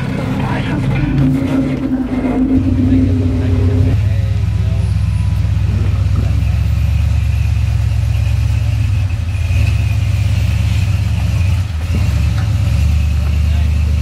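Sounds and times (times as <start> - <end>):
engine running at low revs: 0.0 - 14.0.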